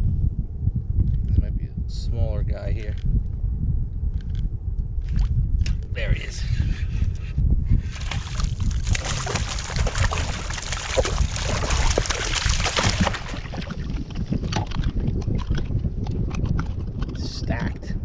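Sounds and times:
wind buffeting microphone: 0.0 - 18.0
water splashing: 7.9 - 15.6.

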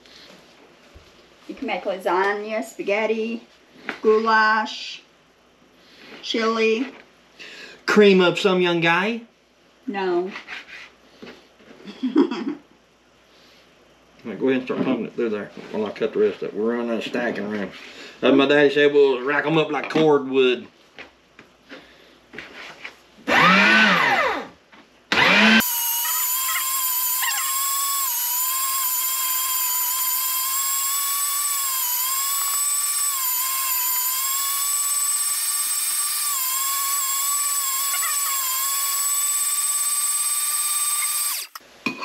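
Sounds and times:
loud whir: 23.3 - 24.5, 25.1 - 41.6
meat grinder motor whining: 23.3 - 24.5, 25.1 - 41.6.

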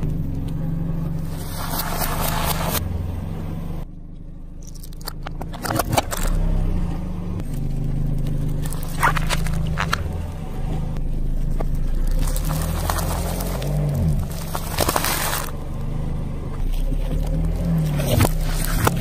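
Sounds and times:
car engine running low: 0.0 - 19.0
tyre crunching objects: 1.2 - 2.8, 4.6 - 6.5, 7.4 - 15.9, 16.6 - 19.0.

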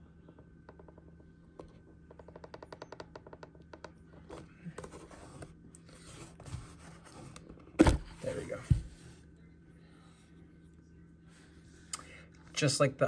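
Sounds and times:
scraping and rustling of box: 4.2 - 9.0.

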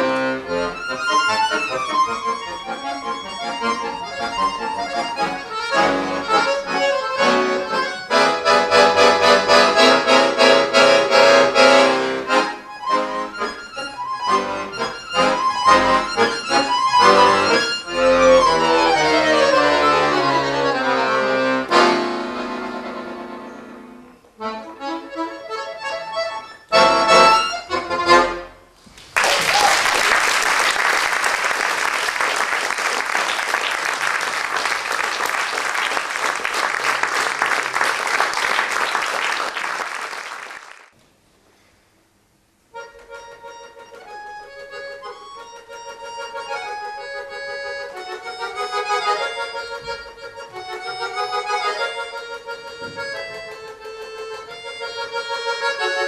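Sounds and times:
piano accordion playing fast: 0.0 - 28.7, 42.7 - 56.0
audience applause: 28.9 - 40.9.

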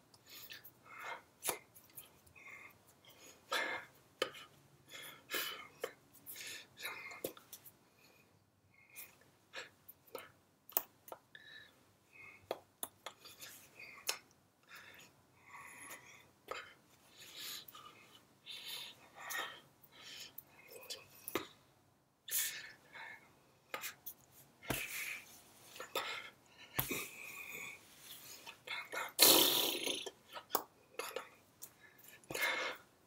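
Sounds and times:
soft breathy mouth noises: 11.3 - 21.6
hands tapping and slapping: 26.8 - 27.0.

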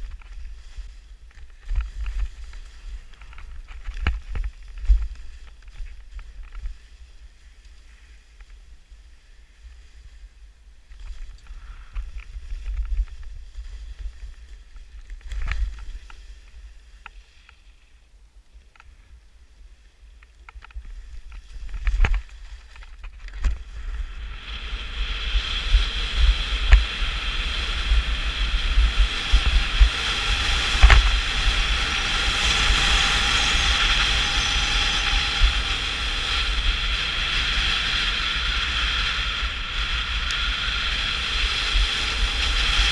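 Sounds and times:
skis sliding on snow: 0.0 - 42.9
wind buffeting microphone: 20.7 - 42.9.

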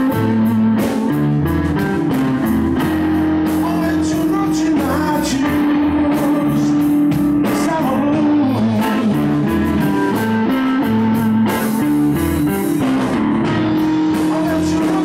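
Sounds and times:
drum kit: 0.0 - 15.0
electric bass: 0.0 - 15.0
electric guitar: 0.0 - 15.0
man singing: 3.5 - 11.8, 13.7 - 15.0.

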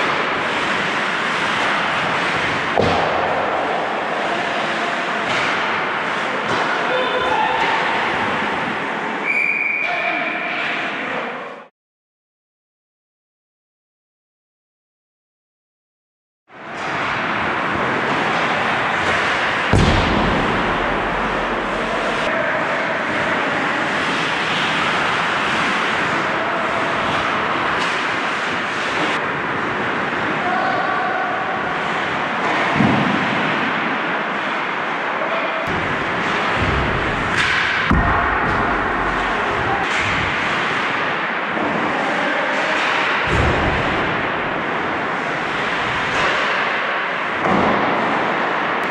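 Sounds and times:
skates scraping on ice: 0.0 - 6.8, 23.1 - 29.6
loud knock: 19.7 - 22.3, 35.7 - 40.4
sharp knock: 19.7 - 22.3
arena hum: 19.8 - 22.3.

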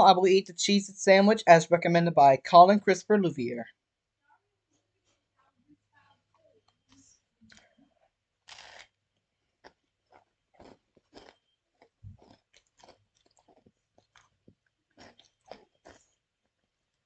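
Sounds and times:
crackers crunching while chewing: 8.4 - 9.0, 9.6 - 17.0.

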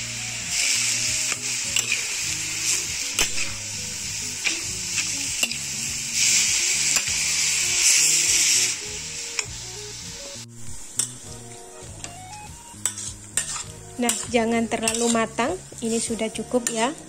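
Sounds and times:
radish sizzling in a pan: 0.0 - 17.0
metal spatula scraping a pan: 0.5 - 3.7, 12.8 - 17.0.

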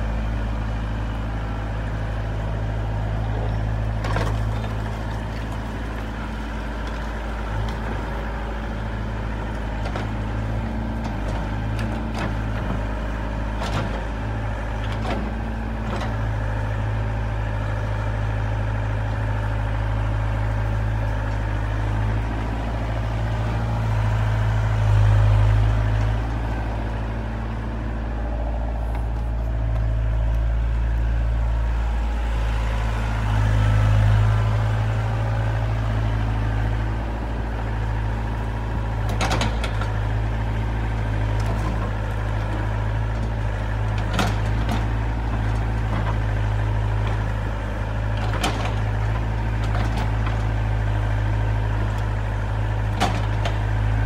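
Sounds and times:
excavator diesel engine running: 0.0 - 54.0
excavator bucket clanking: 3.2 - 8.8, 9.4 - 16.5, 37.7 - 54.0.

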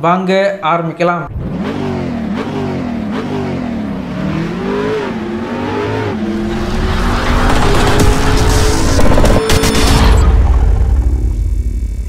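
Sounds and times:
car engine revving: 1.3 - 11.6
rushing noise: 4.3 - 12.0.

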